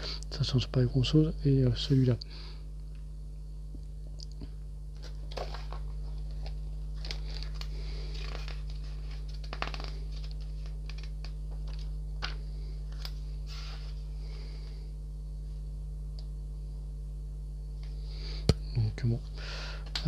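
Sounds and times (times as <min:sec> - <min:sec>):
steady low hum: 0:00.0 - 0:20.0
paper pages rustling: 0:05.0 - 0:14.0.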